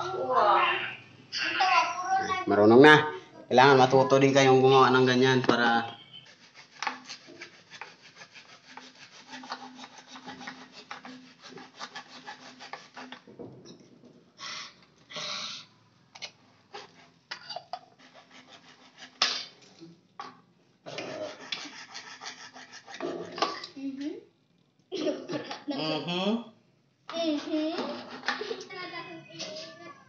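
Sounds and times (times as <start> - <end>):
plastic pipe rubbing and scraping: 6.1 - 13.5, 20.9 - 23.6, 27.7 - 28.6.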